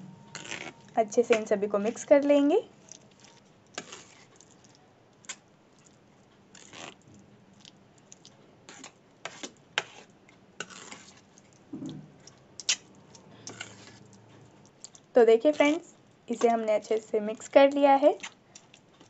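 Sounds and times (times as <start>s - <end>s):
mash squelching: 0.0s - 17.2s
spoon scraping a steel bowl: 0.3s - 2.4s, 8.7s - 11.2s, 13.4s - 14.0s.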